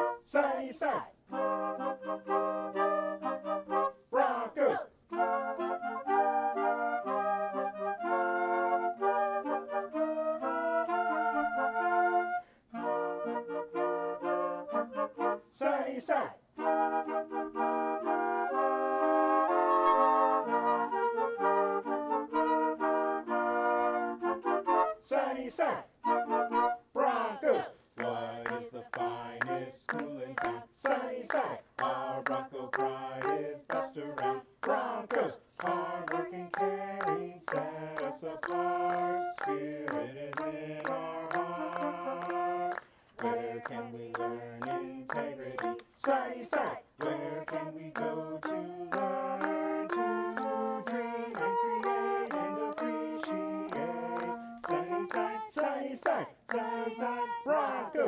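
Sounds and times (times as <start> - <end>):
man and woman singing: 0.0 - 1.4, 4.0 - 5.2, 15.4 - 16.5, 24.9 - 58.0
clarinet: 0.0 - 58.0
flute: 0.0 - 58.0
hand claps: 26.5 - 57.4.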